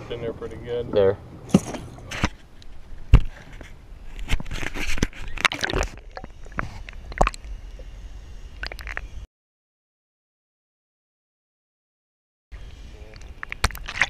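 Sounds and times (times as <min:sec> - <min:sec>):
water sloshing and gurgling: 0:04.2 - 0:07.5, 0:13.5 - 0:14.0.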